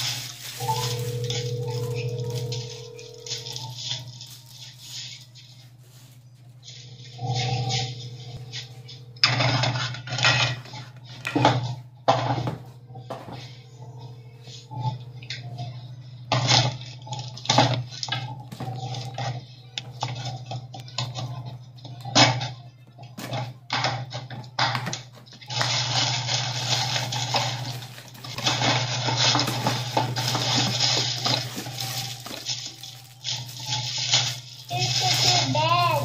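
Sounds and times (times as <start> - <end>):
packaging rustling and crinkling: 0.0 - 7.0, 24.8 - 36.0
low hum: 0.0 - 22.7.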